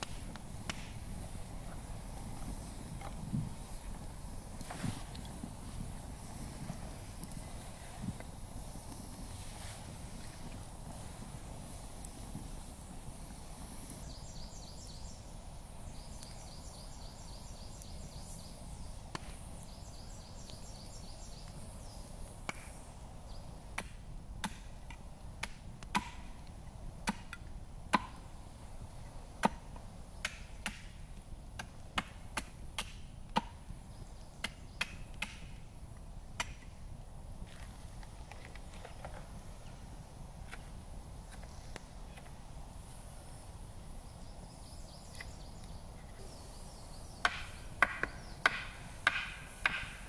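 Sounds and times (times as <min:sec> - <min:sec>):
axe chopping firewood: 0:23.7 - 0:26.3, 0:27.0 - 0:28.2, 0:29.4 - 0:31.0, 0:31.6 - 0:33.6, 0:34.4 - 0:35.5, 0:47.2 - 0:50.0.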